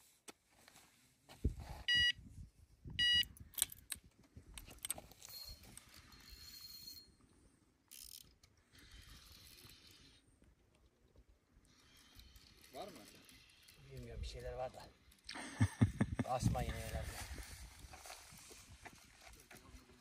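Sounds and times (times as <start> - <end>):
bite alarm beeps: 1.9 - 2.2, 3.0 - 3.3.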